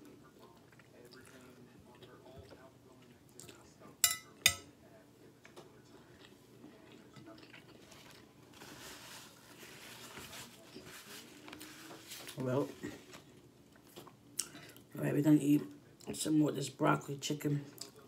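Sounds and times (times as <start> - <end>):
quiet chewing: 0.0 - 3.9, 4.9 - 14.9
fork clinking on plate: 4.0 - 4.7.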